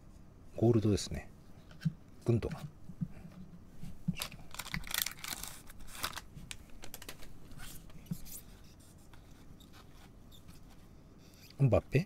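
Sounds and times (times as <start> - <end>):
foil wrapper crackling: 4.1 - 7.2.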